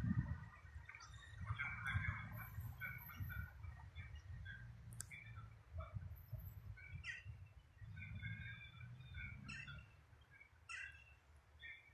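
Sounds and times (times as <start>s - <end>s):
small birds chirping: 0.4s - 11.9s.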